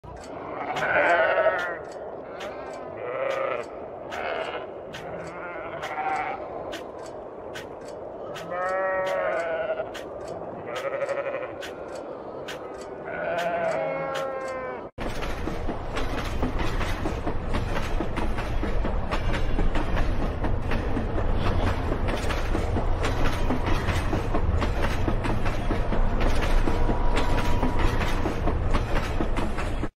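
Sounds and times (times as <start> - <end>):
freight train passing on rails: 0.1 - 29.9
sheep bleating: 0.3 - 1.8, 2.9 - 6.4, 8.4 - 10.0, 10.6 - 11.7, 13.0 - 14.9.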